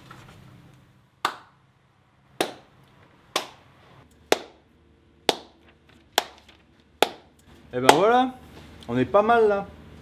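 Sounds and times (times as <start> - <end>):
slow hand clapping: 1.2 - 1.6, 2.4 - 2.7, 3.3 - 3.6.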